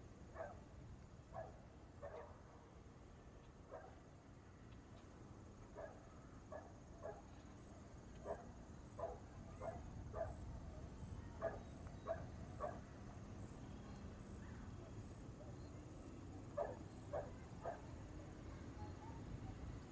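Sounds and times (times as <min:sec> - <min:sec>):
dog barking: 0:00.4 - 0:00.6, 0:01.4 - 0:02.4, 0:03.7 - 0:04.0, 0:05.8 - 0:07.3, 0:08.2 - 0:10.4, 0:11.4 - 0:12.8, 0:16.6 - 0:17.9.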